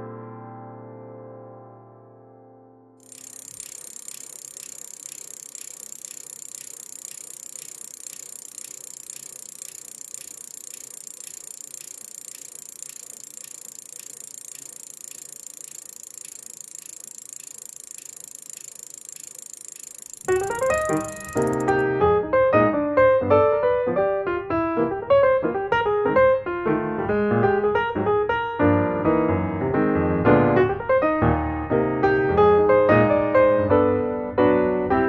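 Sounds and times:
bicycle freehub ticking: 3.0 - 21.8.

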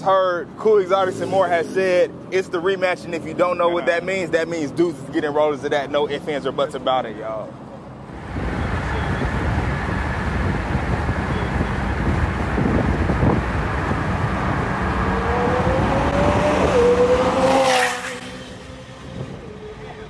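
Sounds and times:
sports car engine revving: 8.1 - 20.0.

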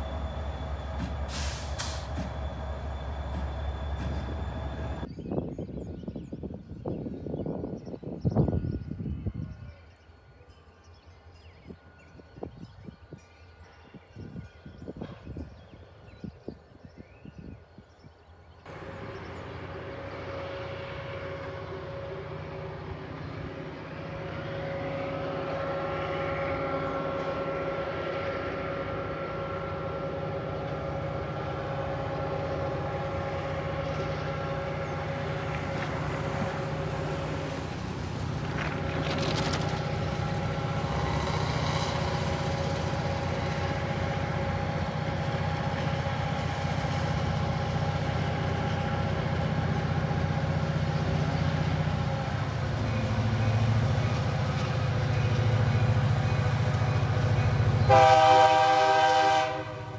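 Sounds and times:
diesel locomotive engine running: 0.0 - 5.1, 18.7 - 59.9.

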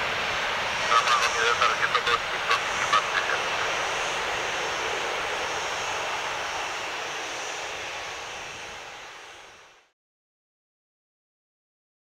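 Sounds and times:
jet engines roaring at takeoff: 0.0 - 9.9.

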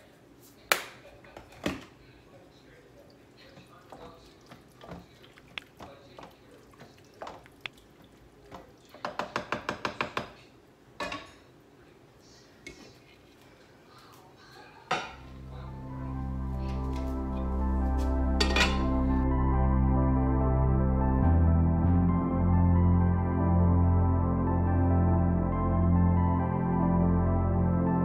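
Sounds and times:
wooden spoon stirring in pot: 3.1 - 10.4
background music: 15.2 - 28.0.

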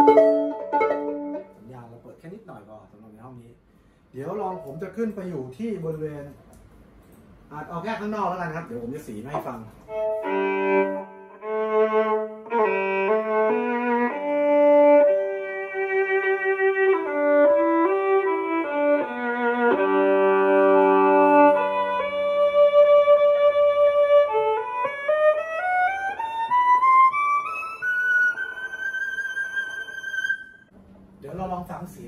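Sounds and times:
violin bowed: 0.0 - 1.7, 9.9 - 30.7.

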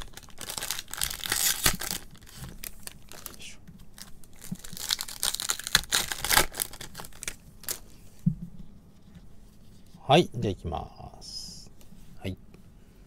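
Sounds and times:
foil wrapper tearing and crinkling: 0.0 - 3.4, 4.0 - 7.8.

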